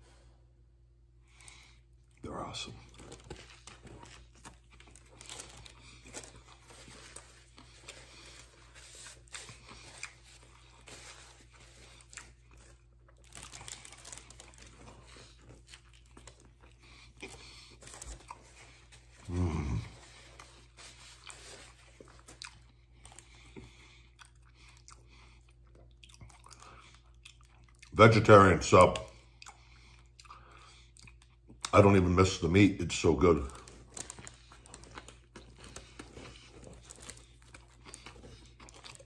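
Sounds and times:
person chewing and crunching: 0:01.2 - 0:32.0, 0:32.9 - 0:39.0
paper wrapper crackling: 0:02.9 - 0:16.6, 0:32.8 - 0:39.0.

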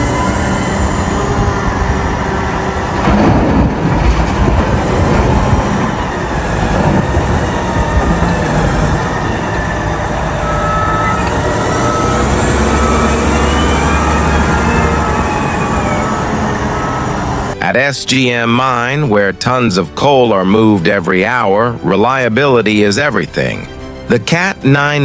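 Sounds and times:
diesel engine running under load: 0:00.0 - 0:17.6
rising whine: 0:00.0 - 0:17.6.

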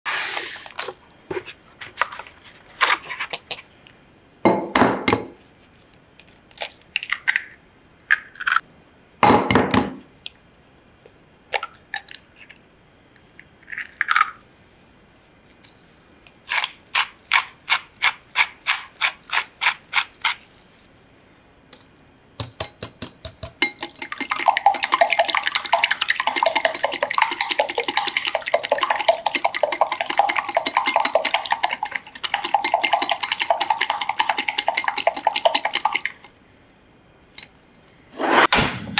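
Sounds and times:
whisk beating eggs in bowl: 0:23.6 - 0:36.2.

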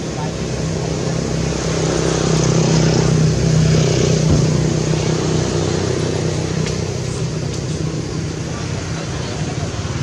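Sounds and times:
vehicle engine running: 0:00.0 - 0:10.0.

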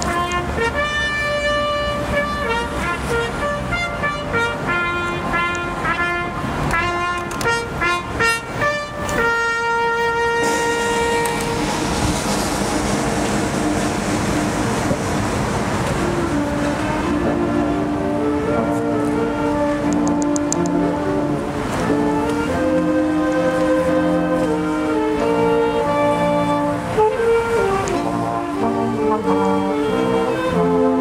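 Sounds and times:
solo brass call: 0:00.0 - 0:14.8, 0:15.6 - 0:31.0.

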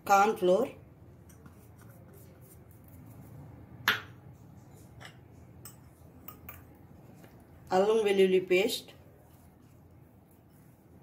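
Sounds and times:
ceramic bowl knocking on hard surface: 0:03.8 - 0:04.2
hands handling floury mix: 0:08.9 - 0:11.0.

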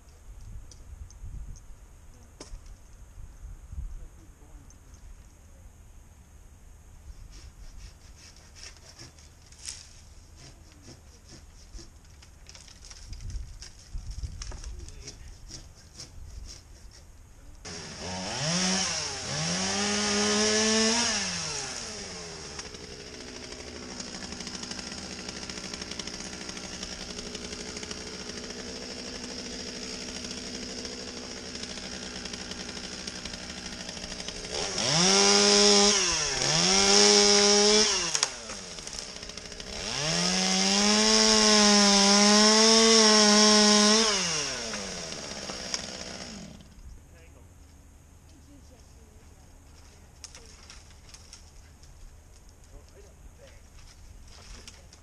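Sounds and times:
chainsaw revving: 0:17.6 - 0:46.7.

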